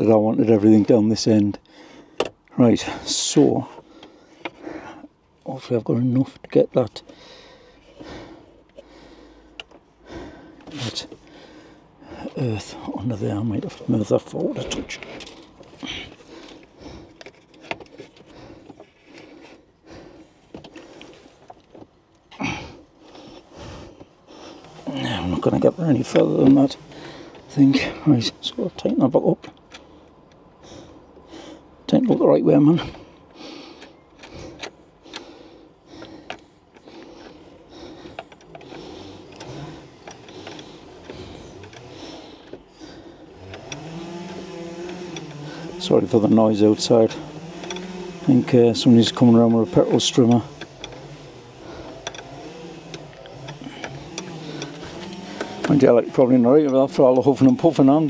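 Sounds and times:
cable clicks and rustling: 0:00.0 - 0:58.0
person breathing heavily: 0:01.6 - 0:05.2, 0:07.0 - 0:13.1, 0:14.5 - 0:21.6, 0:22.2 - 0:26.1, 0:26.7 - 0:28.4, 0:29.7 - 0:31.9, 0:32.6 - 0:45.8, 0:50.4 - 0:55.9
strimmer engine revving: 0:22.4 - 0:58.0
spanner clicking on metal: 0:36.0 - 0:58.0.

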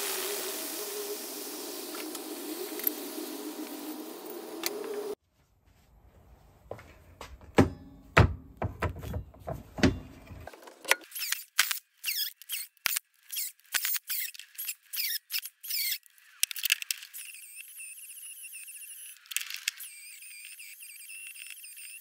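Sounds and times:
angle grinder squealing on metal: 0:17.1 - 0:22.0.

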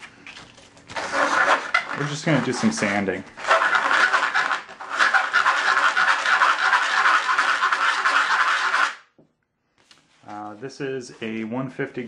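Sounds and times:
sandpaper rubbing on metal: 0:00.9 - 0:09.0.

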